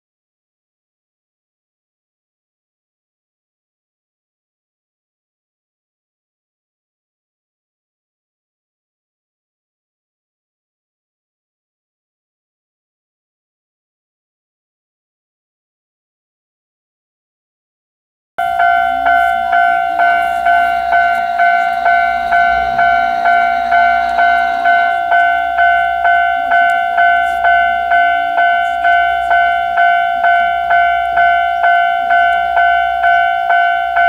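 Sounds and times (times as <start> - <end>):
level crossing warning bell: 18.4 - 34.0.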